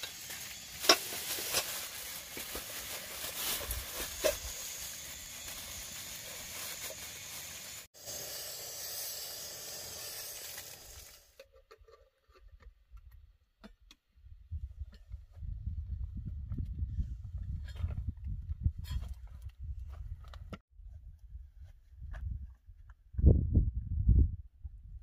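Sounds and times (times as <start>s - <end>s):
kettle hissing on camp stove: 0.0s - 11.4s.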